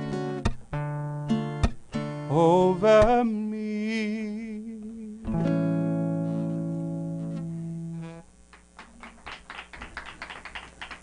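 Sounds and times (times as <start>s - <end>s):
acoustic guitar chord strummed: 0.0s - 8.4s
audience hand clapping: 8.5s - 11.0s.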